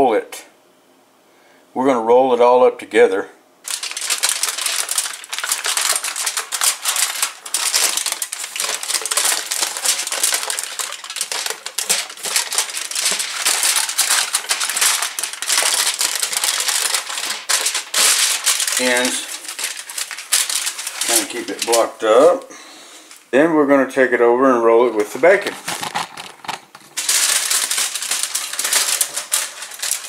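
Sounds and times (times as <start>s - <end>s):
aluminium foil crinkling: 3.6s - 22.5s, 25.0s - 30.0s.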